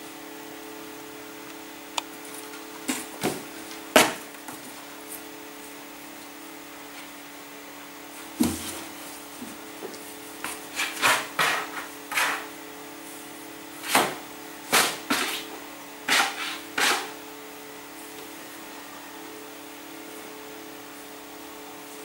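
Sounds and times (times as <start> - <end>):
faint steady hum: 0.0 - 22.0
cat scratching cardboard boxes: 8.3 - 12.5, 13.8 - 17.2.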